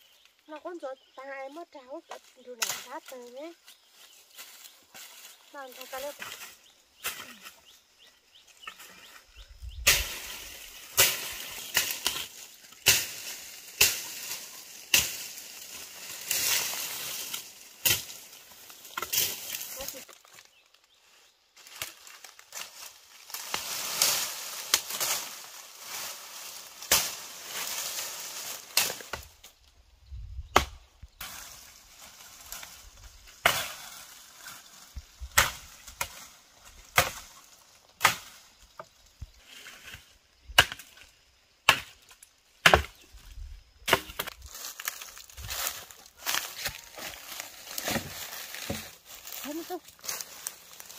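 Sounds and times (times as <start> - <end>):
dry brush rustling and crackling: 0.0 - 29.8, 31.0 - 41.2, 42.0 - 50.9
machete chopping wood: 10.9 - 14.3, 14.9 - 15.4, 30.5 - 30.8, 35.4 - 36.2, 36.9 - 37.3, 38.0 - 38.4, 40.6 - 41.0, 41.7 - 43.0, 43.9 - 44.4, 46.3 - 49.0.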